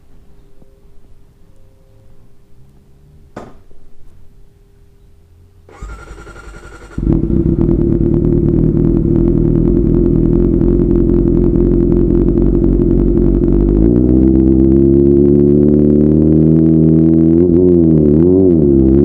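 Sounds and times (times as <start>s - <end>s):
starter motor cranking: 5.7s - 7.3s
motorcycle engine idling loudly: 5.7s - 15.2s.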